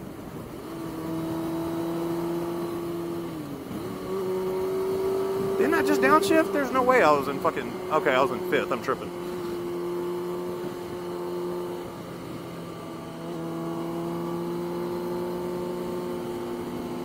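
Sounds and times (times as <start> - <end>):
motorcycle engine cruising: 0.0 - 17.0.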